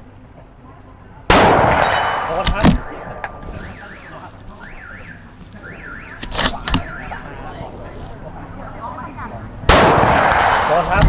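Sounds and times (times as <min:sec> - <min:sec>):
rifle shot cracks: 0:01.3 - 0:03.5, 0:09.7 - 0:11.0
alarm wailing: 0:03.6 - 0:07.4.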